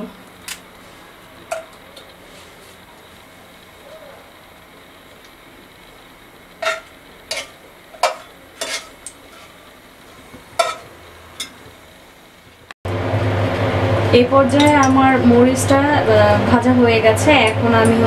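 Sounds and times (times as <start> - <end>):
oil frying hiss: 0.0 - 12.8
loud steady background noise: 0.0 - 18.0
metal spatula clinking on pan: 10.6 - 10.8.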